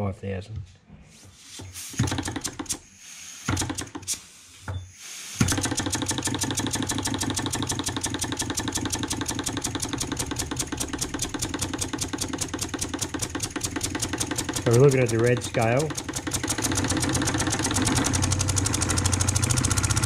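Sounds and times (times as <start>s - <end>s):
model steam engine chuffing: 5.5s - 20.0s.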